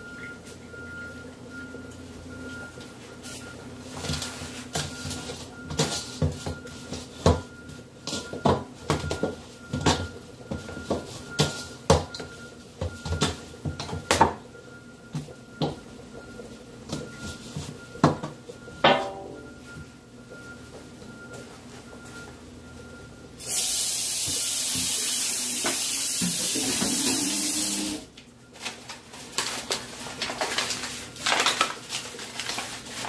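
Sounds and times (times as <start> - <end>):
steel bowl ringing: 18.8 - 19.6.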